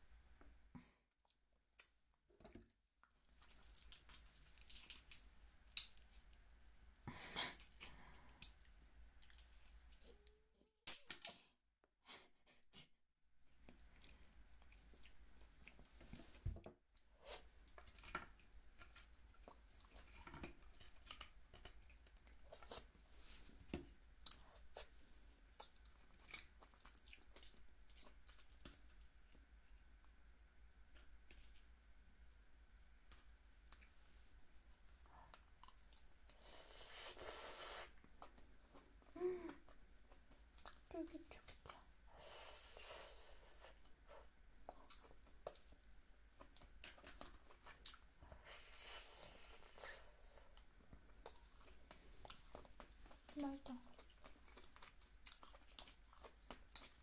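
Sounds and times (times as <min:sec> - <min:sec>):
chewing: 0:03.4 - 0:05.2, 0:17.7 - 0:23.0, 0:24.2 - 0:29.3, 0:34.9 - 0:36.1, 0:43.6 - 0:48.4, 0:49.1 - 0:57.0.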